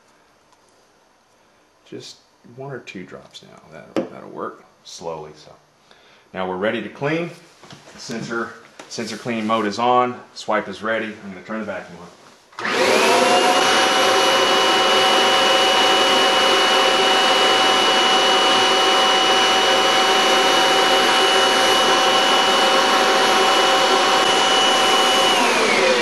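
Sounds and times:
vacuum cleaner motor running: 12.6s - 26.0s
vacuum cleaner switch: 12.6s - 26.0s.

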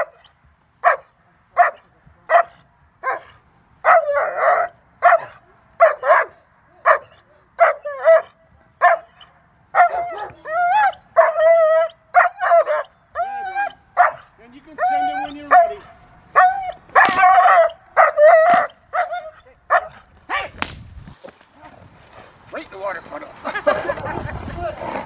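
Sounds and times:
dog barking and yelping: 0.0s - 20.5s.

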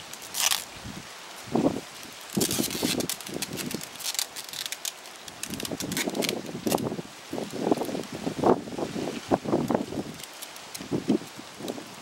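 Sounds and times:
rustling: 0.0s - 1.0s, 2.0s - 6.9s
dry grass crackling and snapping: 0.0s - 8.2s, 9.5s - 12.0s.

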